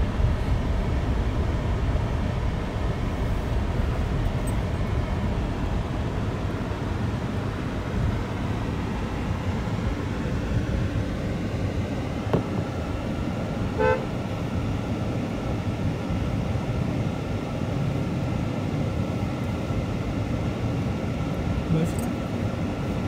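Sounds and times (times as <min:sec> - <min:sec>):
car cabin rumble: 0:00.0 - 0:23.0
short car horn toot: 0:13.8 - 0:14.2.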